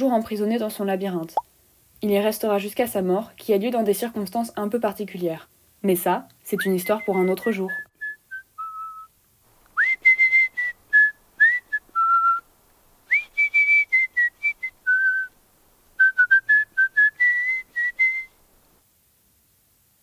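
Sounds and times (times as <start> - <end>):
person whistling a tune: 6.6 - 9.1, 9.8 - 12.4, 13.1 - 15.3, 16.0 - 18.3.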